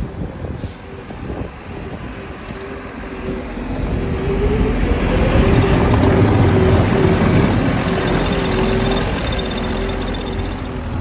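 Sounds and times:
snow plow whining: 2.2s - 11.0s.

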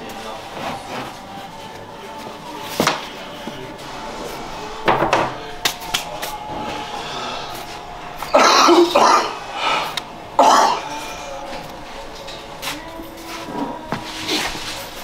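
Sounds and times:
person coughing: 8.3s - 9.4s, 10.4s - 11.1s.

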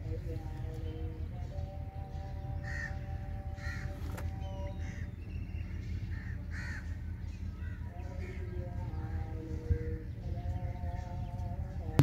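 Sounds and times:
crows cawing: 2.6s - 3.0s, 3.6s - 4.0s, 4.8s - 5.1s, 6.1s - 7.0s.

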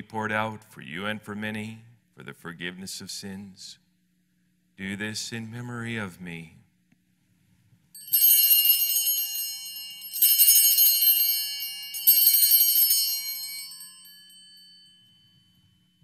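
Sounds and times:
altar bells jangling: 8.0s - 16.0s.

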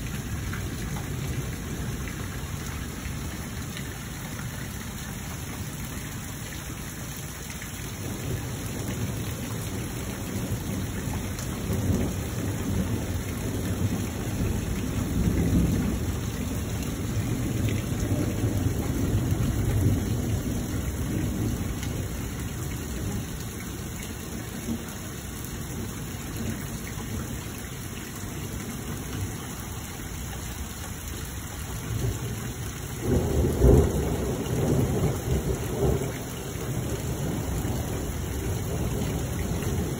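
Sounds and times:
steady rain: 0.0s - 39.9s
thunder rumbling: 33.0s - 39.9s.

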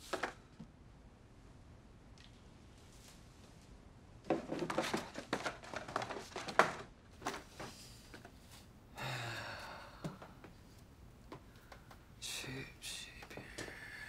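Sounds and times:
paper rustling: 4.3s - 8.7s
soft breathy sound: 7.6s - 14.0s.

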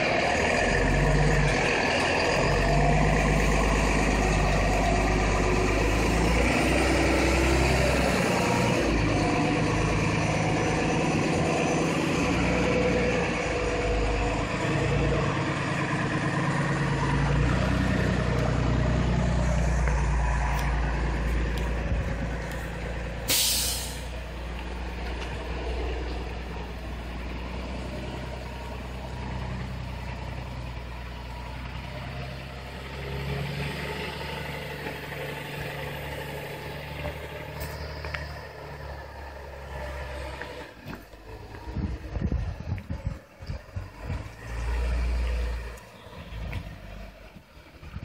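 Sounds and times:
motorhome engine climbing: 0.0s - 48.0s
short sharp hiss: 23.3s - 24.1s.

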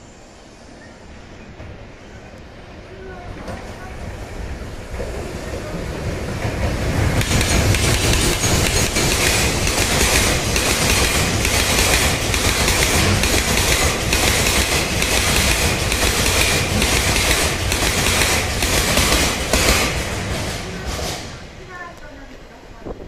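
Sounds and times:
freight train rumble: 0.0s - 23.0s
train wheels clattering over rail joints: 6.0s - 21.5s.

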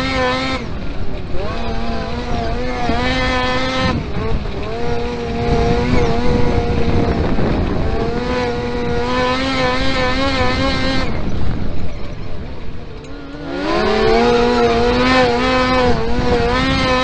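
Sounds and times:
engine at high revs: 0.0s - 17.0s.

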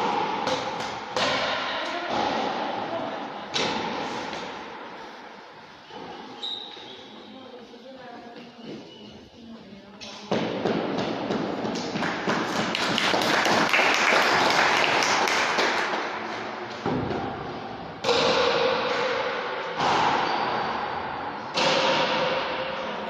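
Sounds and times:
ball rebounding off court walls: 0.0s - 2.6s.

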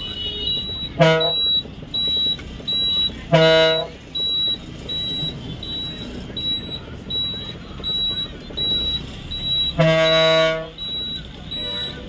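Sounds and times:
bus horn toot: 0.0s - 1.6s, 3.2s - 4.0s, 9.5s - 10.8s
low engine rumble: 0.0s - 12.0s
high electronic beeps: 0.4s - 12.0s.

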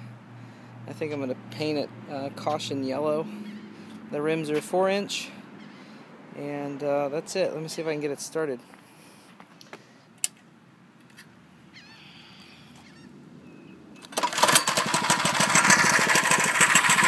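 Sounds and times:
small engine puttering: 14.0s - 17.0s.

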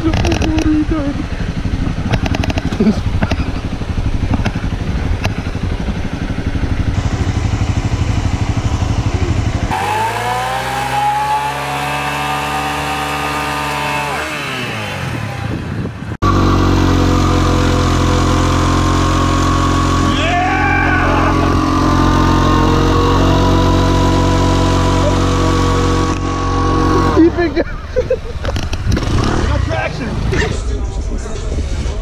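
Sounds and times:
scooter engine revving: 0.0s - 30.8s
dirt bike engine running: 0.0s - 32.0s
dirt bike engine revving high: 0.9s - 27.8s, 28.8s - 30.5s.

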